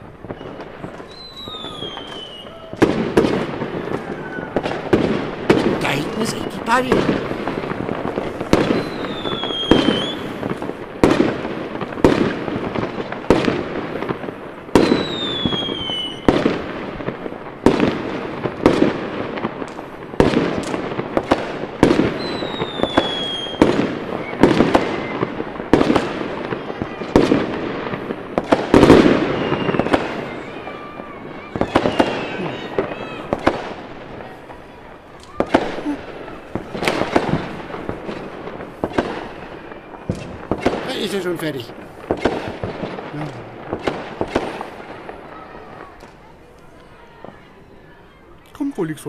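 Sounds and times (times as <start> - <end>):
falling firework whistle: 0.0 - 5.6, 6.9 - 11.3, 14.7 - 16.6, 21.8 - 27.4, 28.0 - 40.8
fireworks bursts: 0.0 - 49.0.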